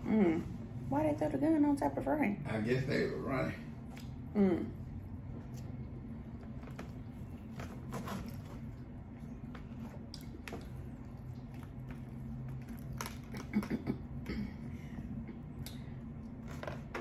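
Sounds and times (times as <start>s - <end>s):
low steady hum: 0.0s - 17.0s
soft chewing: 5.0s - 14.3s.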